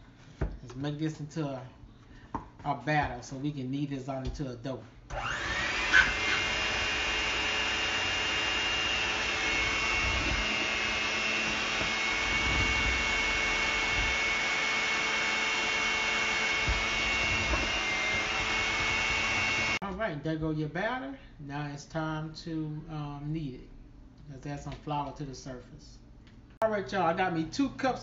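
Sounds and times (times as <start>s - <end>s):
electric hand mixer whirring: 5.1s - 19.8s.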